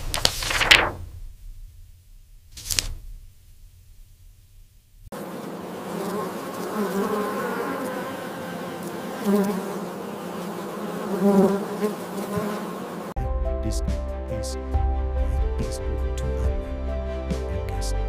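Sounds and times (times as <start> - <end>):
honeybees buzzing: 5.1 - 13.2
music: 13.2 - 18.0.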